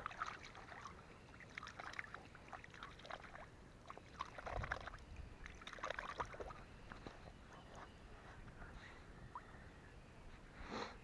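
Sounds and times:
small water splashes and drips: 0:00.0 - 0:07.3.

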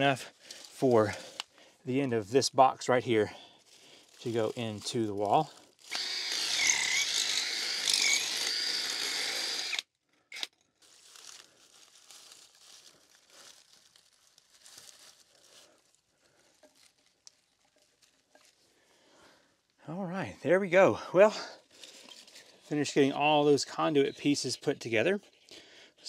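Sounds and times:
hammer drill boring into masonry: 0:05.9 - 0:10.5
plastic fittings being handled: 0:16.4 - 0:18.7, 0:21.7 - 0:22.8.

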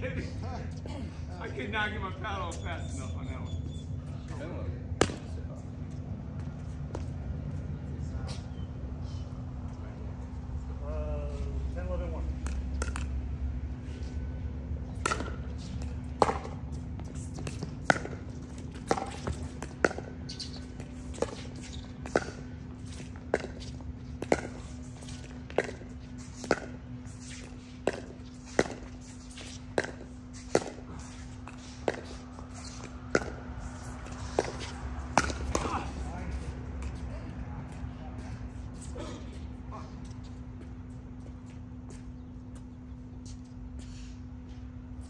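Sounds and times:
steady low hum: 0:00.0 - 0:45.0
paddles hitting plastic ball: 0:27.4 - 0:33.4, 0:34.0 - 0:36.0.

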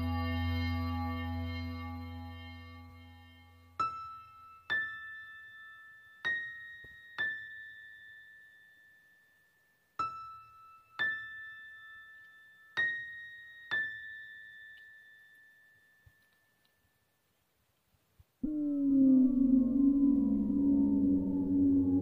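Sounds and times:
low drone: 0:18.4 - 0:22.0.

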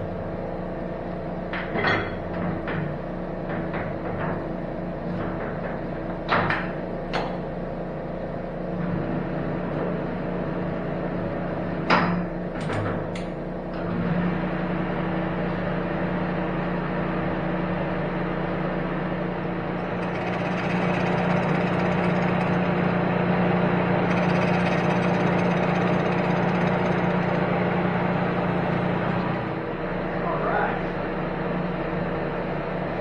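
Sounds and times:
machine hum: 0:00.0 - 0:33.0
milling cutter cutting metal: 0:19.8 - 0:28.0.

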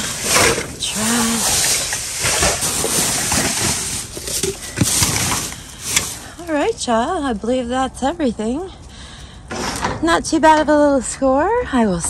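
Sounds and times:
plastic bags crinkling: 0:00.0 - 0:07.2.

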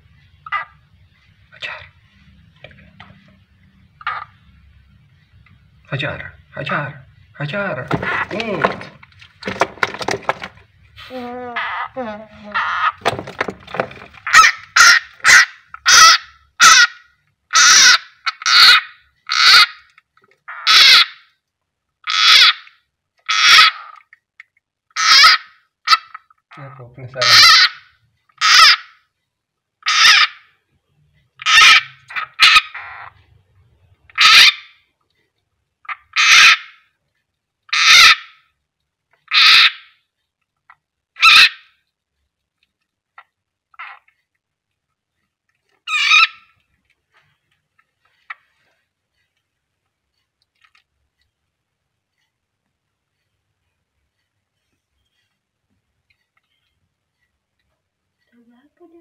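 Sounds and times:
frog screaming: 0:14.2 - 0:19.8, 0:20.5 - 0:21.2, 0:22.1 - 0:22.6, 0:23.3 - 0:24.0, 0:25.0 - 0:26.1, 0:27.2 - 0:29.0, 0:29.8 - 0:30.4, 0:31.4 - 0:33.1, 0:34.2 - 0:34.7, 0:37.7 - 0:38.4, 0:39.3 - 0:39.9, 0:41.2 - 0:41.7.

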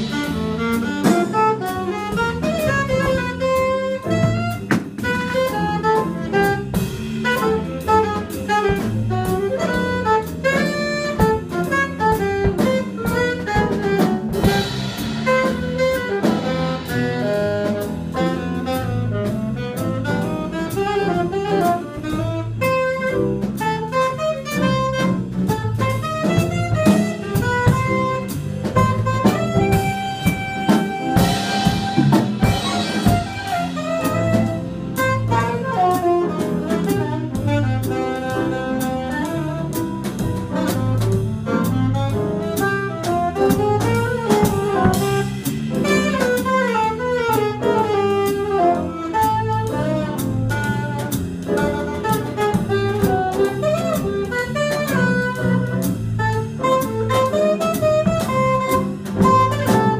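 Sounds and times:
drum kit swing beat: 0:00.0 - 0:59.9
piano: 0:00.0 - 0:59.9
saxophone melody: 0:00.0 - 0:59.9.

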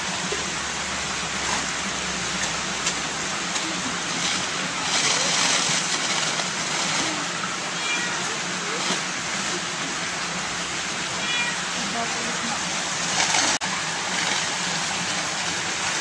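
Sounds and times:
water splashing into ponds: 0:00.0 - 0:16.0
plastic bag rustling: 0:03.6 - 0:08.1.

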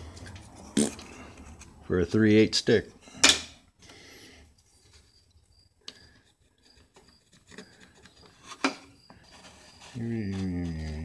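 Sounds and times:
pencil scratching: 0:09.2 - 0:11.0.

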